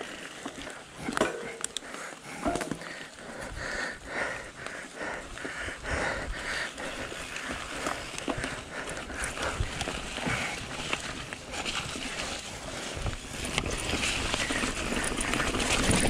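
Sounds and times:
bike tyres crunching over dirt: 0:00.0 - 0:16.0
bike knocks and rattles: 0:01.0 - 0:02.9, 0:09.3 - 0:16.0.

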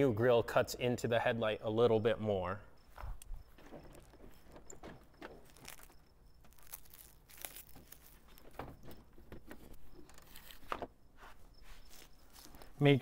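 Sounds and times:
plastic clicks and scrapes: 0:07.7 - 0:10.9.

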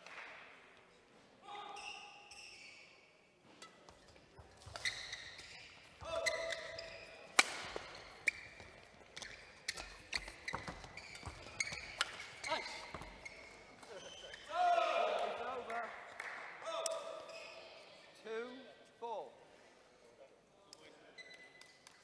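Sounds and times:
shoes squeaking on court: 0:01.7 - 0:14.5, 0:17.2 - 0:17.9, 0:21.1 - 0:22.0
rackets striking shuttlecock: 0:03.5 - 0:14.5.

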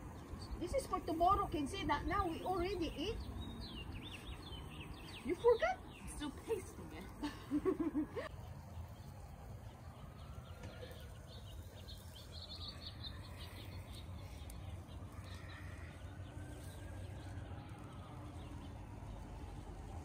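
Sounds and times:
small birds chirping: 0:00.0 - 0:20.0
faint siren wailing: 0:09.1 - 0:20.0.

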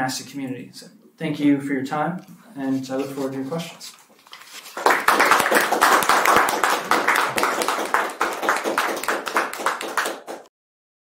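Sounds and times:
audience applauding: 0:04.7 - 0:10.5.

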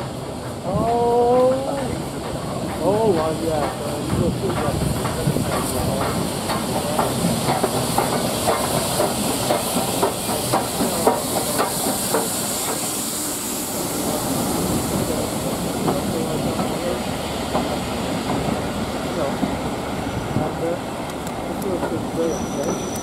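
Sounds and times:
wheels clicking over rail joints: 0:00.0 - 0:12.9, 0:15.0 - 0:19.7
steam locomotive hissing: 0:00.0 - 0:23.0.

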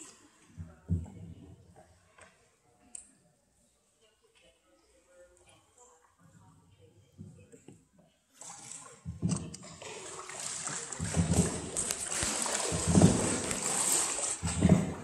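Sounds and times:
water splashing and sloshing: 0:08.3 - 0:15.0.

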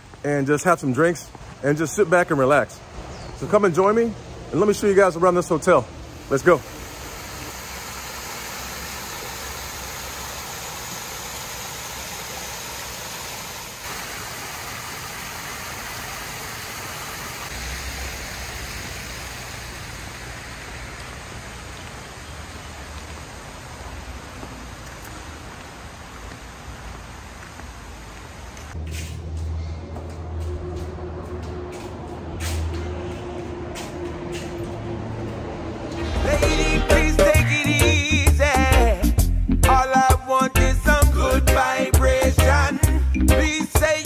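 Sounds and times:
waterfall splashing into pond: 0:06.2 - 0:28.8.

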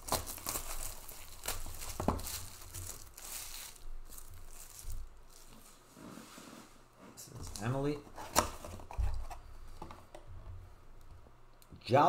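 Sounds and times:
plastic wrapping crackling: 0:00.0 - 0:05.8.

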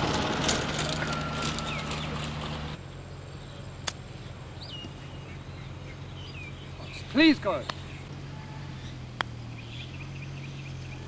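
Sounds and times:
bird chirps: 0:01.0 - 0:02.4, 0:03.0 - 0:11.0.

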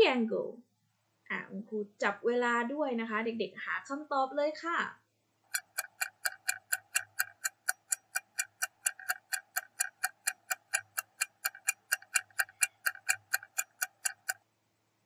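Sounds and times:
clock ticking fast: 0:05.5 - 0:14.4.

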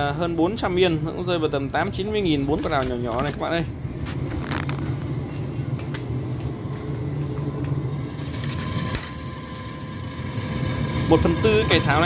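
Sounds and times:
low rumble: 0:03.6 - 0:12.0.

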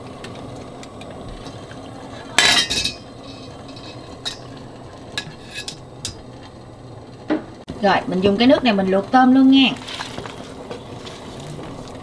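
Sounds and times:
metal utensils clattering on pot: 0:02.4 - 0:06.2.

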